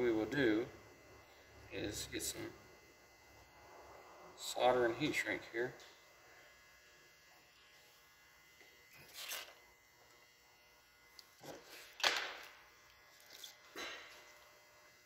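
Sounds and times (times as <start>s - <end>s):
low steady hum: 0.0s - 15.0s
wires rustling and scraping: 8.9s - 9.6s.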